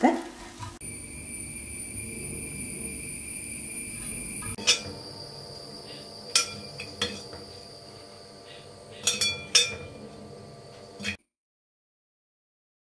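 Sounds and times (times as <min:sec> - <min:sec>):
faint high-pitched tone: 0:00.8 - 0:10.1
spatula clinking on glass bowl: 0:06.3 - 0:07.4, 0:09.0 - 0:10.0.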